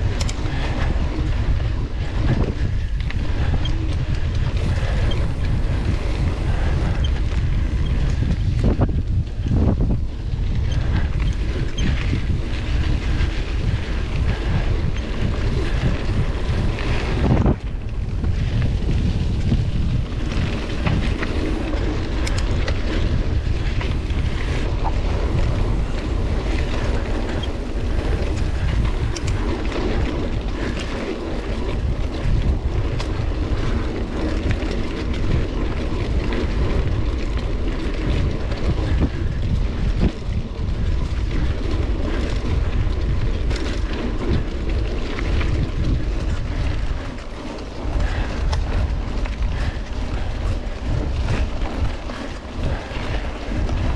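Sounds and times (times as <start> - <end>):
bike clicks and knocks: 0.0 - 53.9
wind buffeting microphone: 0.0 - 53.9.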